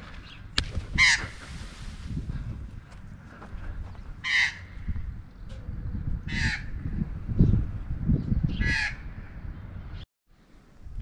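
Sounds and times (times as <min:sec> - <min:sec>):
wind rumble on microphone: 0:00.4 - 0:11.0
magpie harsh scratchy calls: 0:01.0 - 0:01.4, 0:04.2 - 0:04.8.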